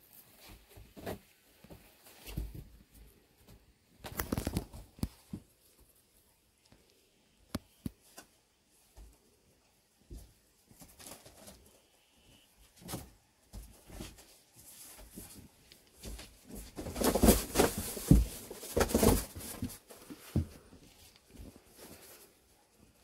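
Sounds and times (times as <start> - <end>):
rustling and scuffing: 12.7 - 23.0.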